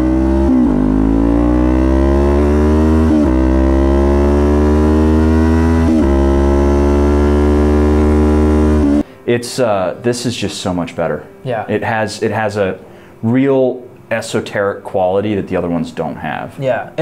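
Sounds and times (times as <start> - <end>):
motorcycle engine revving through gears: 0.0 - 9.0.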